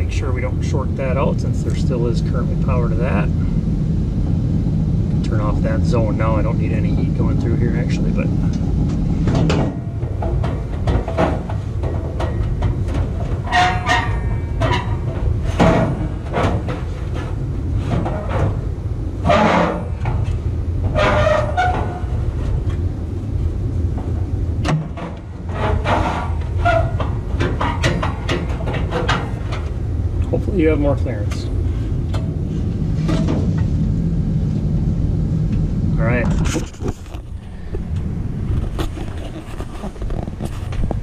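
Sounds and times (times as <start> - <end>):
steady low hum: 0.0 - 41.0
sheet metal clanking and scraping: 5.3 - 22.9, 23.8 - 30.0, 31.3 - 33.9.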